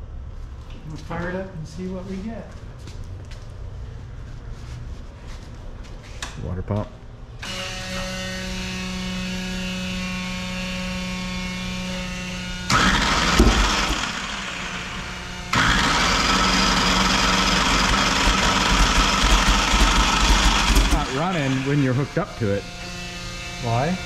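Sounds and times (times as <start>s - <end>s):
electric water pump humming: 7.4s - 24.0s
engine cranking and firing: 12.7s - 14.8s, 15.5s - 21.2s.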